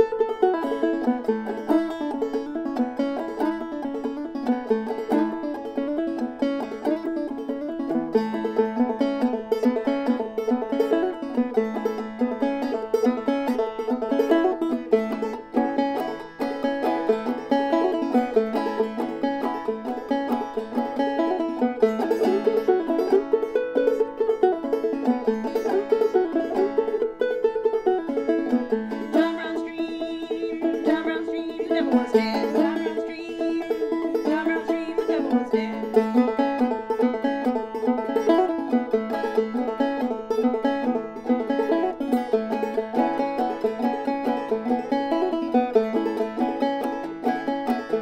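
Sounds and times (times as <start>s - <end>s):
banjo playing: 0.0s - 48.0s.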